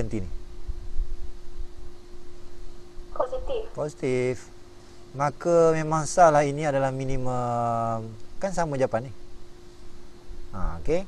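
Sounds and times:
steady thin hum: 0.0s - 11.0s
low background rumble: 3.1s - 4.1s.

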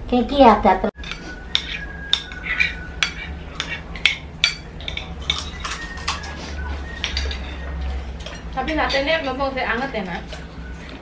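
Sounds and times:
cutlery clinking on plates: 1.0s - 9.3s.

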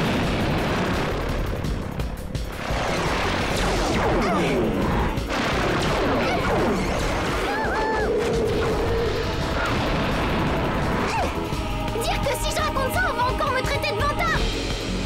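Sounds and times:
blasts and crashes: 0.0s - 11.5s
action music: 0.0s - 15.0s
electronic warbling zap: 2.5s - 11.3s.

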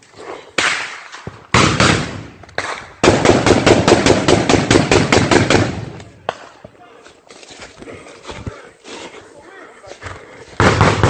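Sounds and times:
single gunshots: 0.6s - 6.0s, 10.6s - 11.0s.

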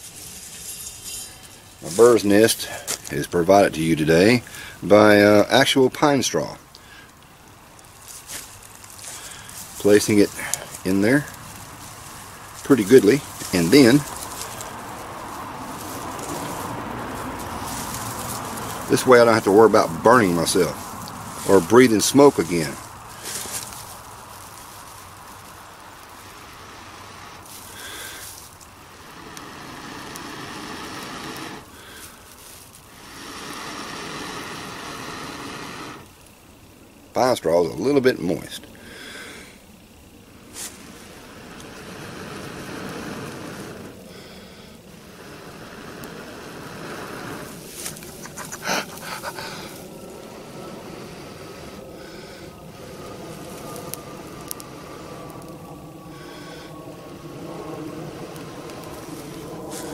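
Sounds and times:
breathy blowing: 4.4s - 4.8s, 6.7s - 7.4s, 8.3s - 24.0s, 26.0s - 36.3s, 38.8s - 39.7s, 40.8s - 59.9s
man panting and blowing: 27.7s - 28.4s, 33.0s - 36.0s, 42.3s - 53.3s, 56.0s - 56.9s.

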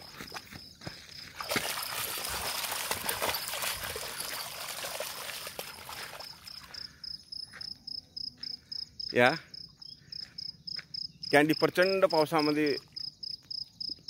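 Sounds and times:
dog splashing through puddle: 0.0s - 6.9s.

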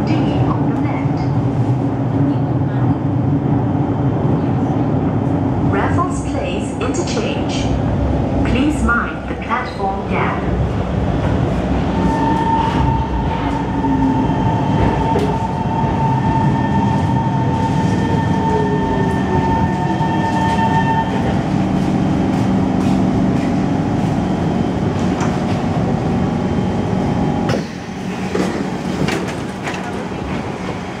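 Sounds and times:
metro train running rumble: 0.0s - 31.0s
train high whine: 11.5s - 29.0s.

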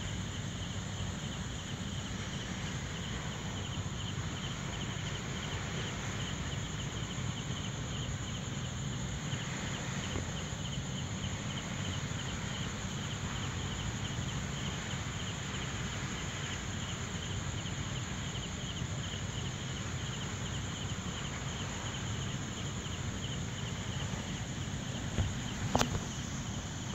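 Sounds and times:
constant low rumble: 0.0s - 26.9s
night insects trilling: 0.0s - 26.9s
short knocks: 25.1s - 26.3s.

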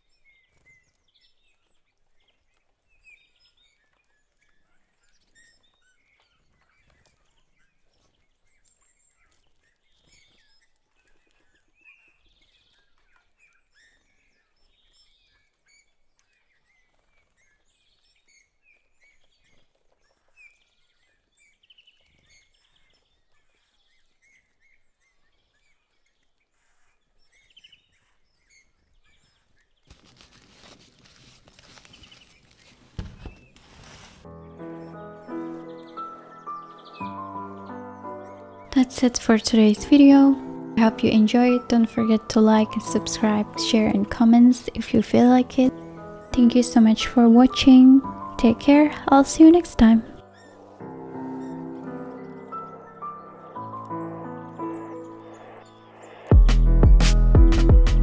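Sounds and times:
faint birds chirping: 0.0s - 58.0s
rustling: 29.0s - 37.3s
thump: 33.0s - 33.4s.

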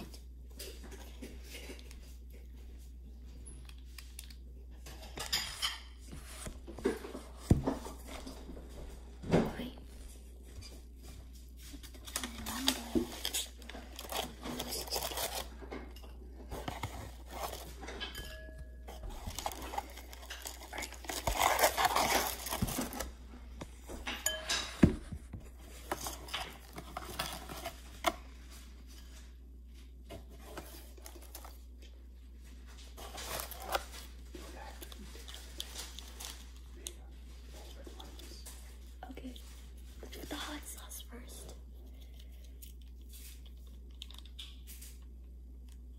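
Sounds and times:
packaging rustling and crinkling: 11.7s - 15.7s, 16.5s - 18.0s, 18.9s - 23.2s, 25.5s - 29.2s, 32.4s - 40.3s
knocks and clinks on a plate: 24.0s - 25.1s.

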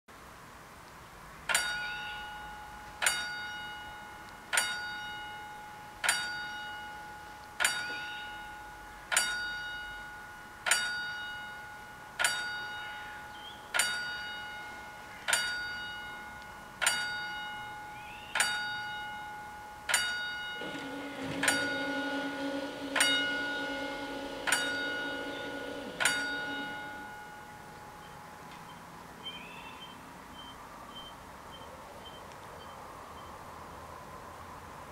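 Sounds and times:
level crossing warning bell: 18.4s - 28.8s
steady low hum: 20.6s - 28.3s.

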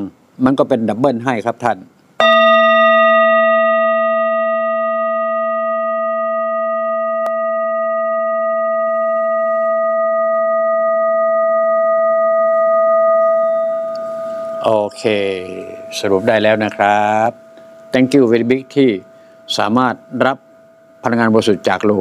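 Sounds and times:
metal bell ringing: 2.2s - 17.2s.

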